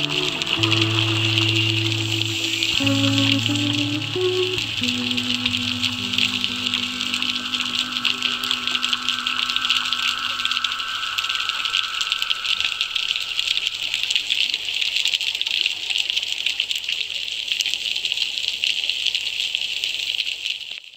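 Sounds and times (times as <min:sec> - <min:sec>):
held tones: 0:00.0 - 0:14.6
underwater crackle: 0:00.0 - 0:17.8.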